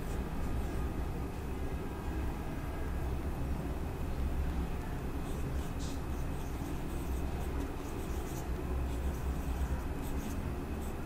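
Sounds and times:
steady low hum: 0:00.0 - 0:11.0
marker scratching on whiteboard: 0:05.2 - 0:11.0.

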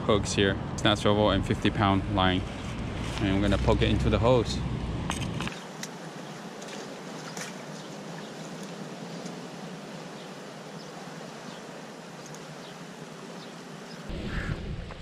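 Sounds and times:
seawater washing among boulders: 0:01.8 - 0:14.1
small splashes: 0:05.1 - 0:09.8.

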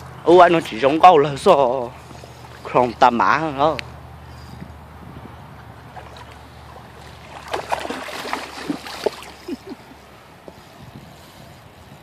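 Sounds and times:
fish thrashing and splashing: 0:05.7 - 0:09.8
small water plops: 0:05.8 - 0:09.6.

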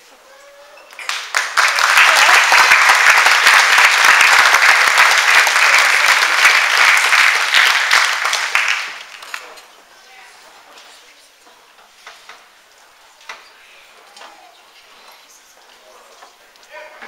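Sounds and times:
audience applauding: 0:00.9 - 0:09.6.

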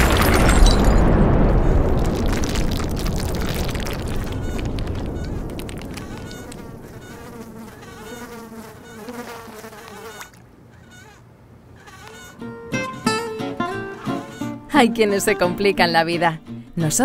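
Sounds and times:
cannon blast rumble: 0:00.0 - 0:08.2
housefly buzzing: 0:04.1 - 0:11.2, 0:11.8 - 0:12.6.

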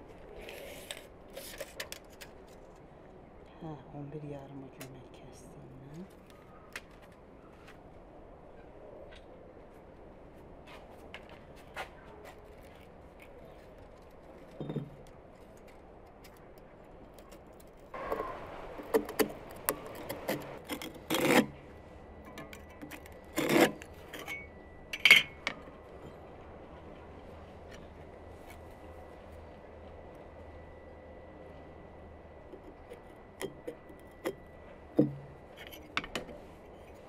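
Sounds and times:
rasping strokes on firebrick: 0:19.0 - 0:21.6, 0:22.9 - 0:24.4.

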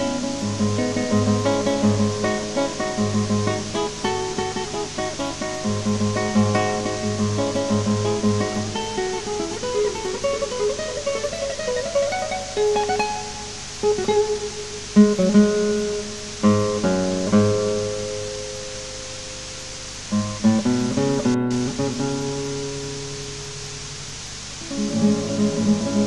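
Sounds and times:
acoustic guitar music: 0:00.0 - 0:26.0.

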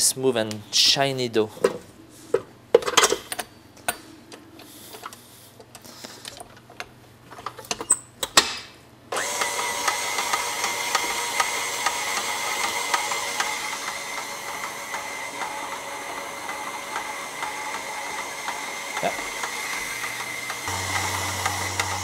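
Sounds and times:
stand mixer motor humming: 0:09.2 - 0:22.0.

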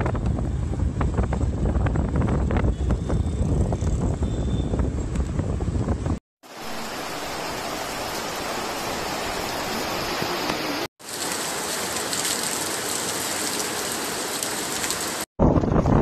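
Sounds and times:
rain pouring on trees: 0:06.4 - 0:15.3.

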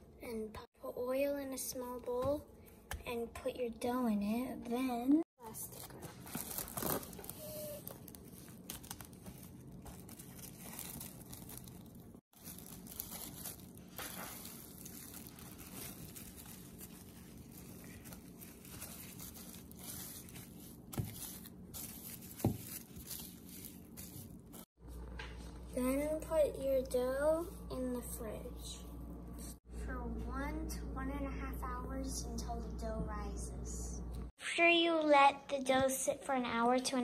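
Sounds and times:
plastic wrap crinkling: 0:05.4 - 0:24.7.

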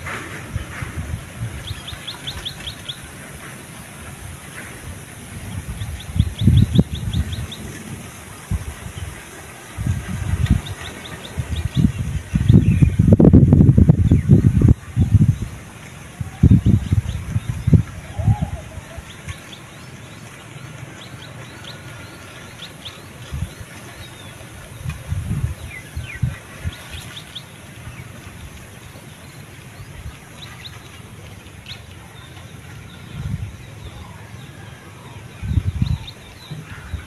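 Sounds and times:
steady outdoor hiss: 0:00.0 - 0:37.0
small birds chirping: 0:05.6 - 0:08.0.

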